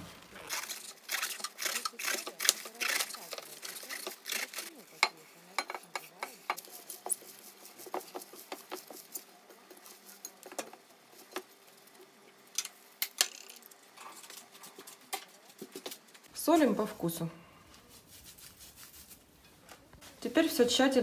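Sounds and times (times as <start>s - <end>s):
cabbage rustling in bowl: 0.0s - 5.0s.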